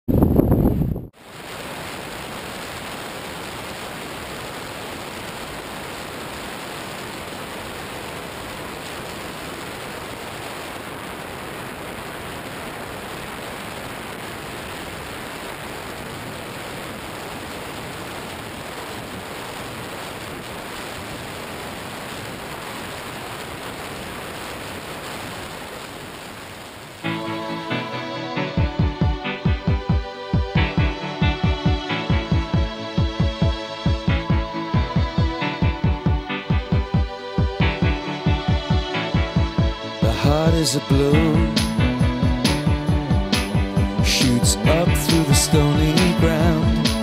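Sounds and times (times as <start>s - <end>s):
wind hissing on microphone: 0.1s - 3.1s.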